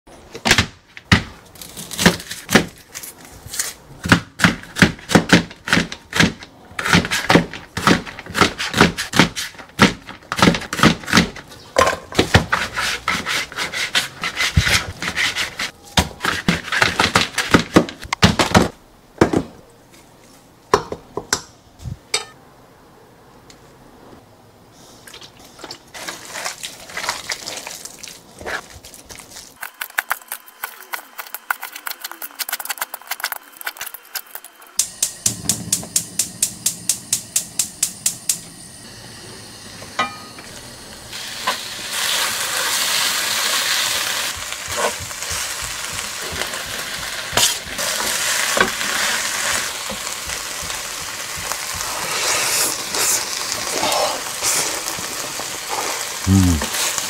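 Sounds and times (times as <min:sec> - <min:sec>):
gloved hands mixing meat: 0:26.0 - 0:33.9.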